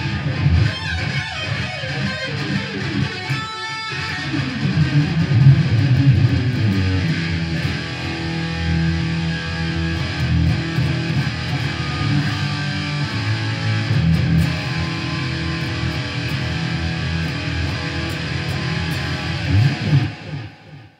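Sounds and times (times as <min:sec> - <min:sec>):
electric guitar playing: 0:00.0 - 0:20.9.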